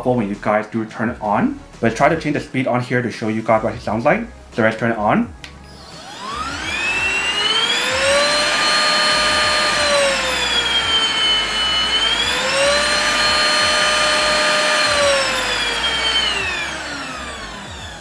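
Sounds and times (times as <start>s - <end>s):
vacuum cleaner motor whining: 5.6s - 18.0s.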